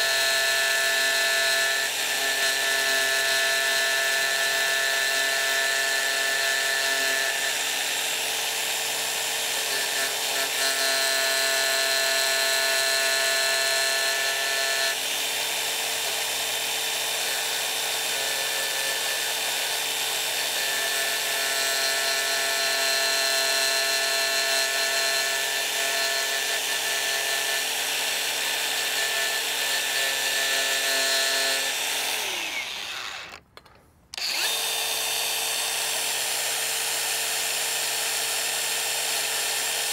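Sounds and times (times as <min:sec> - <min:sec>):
angle grinder sanding wood: 0:28.1 - 0:33.4, 0:34.2 - 0:35.4.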